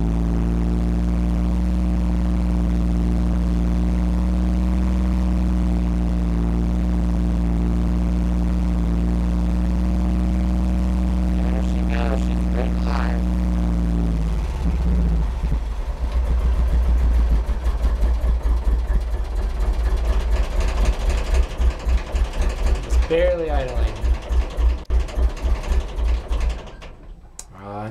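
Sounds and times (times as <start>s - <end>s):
old vehicle engine rough idle: 10.2s - 27.4s.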